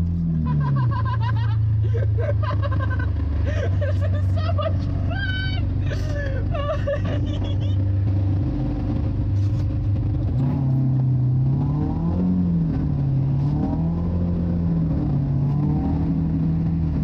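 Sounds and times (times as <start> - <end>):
car engine from inside cabin: 0.0 - 17.0.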